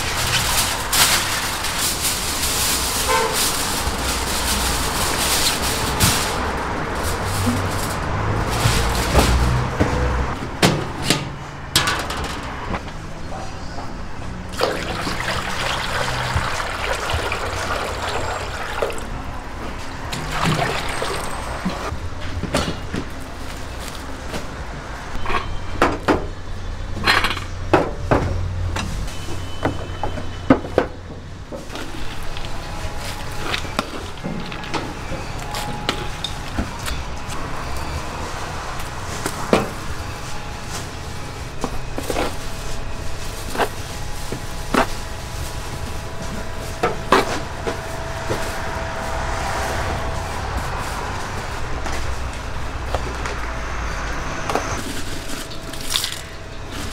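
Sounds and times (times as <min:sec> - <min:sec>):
plastic bags rustling: 0:00.0 - 0:11.0, 0:14.6 - 0:22.0, 0:31.7 - 0:53.9, 0:54.7 - 0:56.9
metal pans and utensils clattering: 0:00.0 - 0:12.9.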